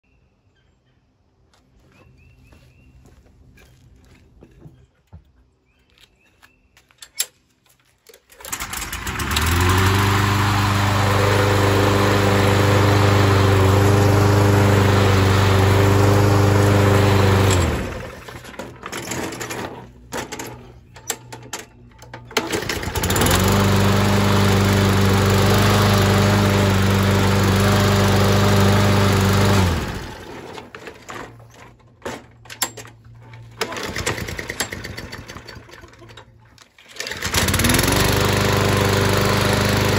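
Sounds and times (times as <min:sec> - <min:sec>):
lawn mower pull-started: 0:07.0 - 0:39.9
lawn mower engine running: 0:08.1 - 0:39.9.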